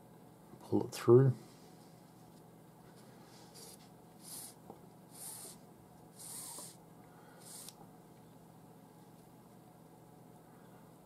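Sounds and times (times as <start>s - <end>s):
cord rubbing on cord: 3.3s - 5.6s.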